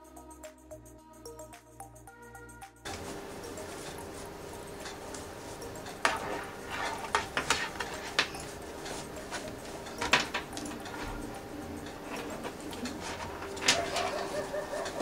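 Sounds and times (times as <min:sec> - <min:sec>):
steady hum: 0:00.0 - 0:15.0
cloth rustling: 0:02.9 - 0:11.4.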